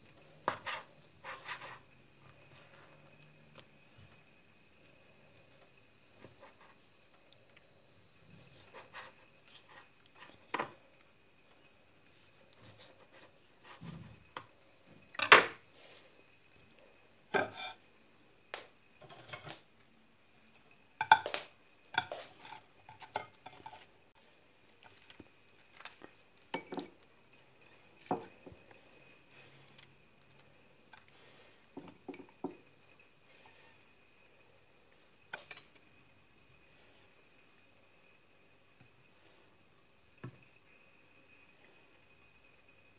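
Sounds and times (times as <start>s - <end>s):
dishes clinking and knocking: 17.4s - 17.8s, 21.0s - 23.8s.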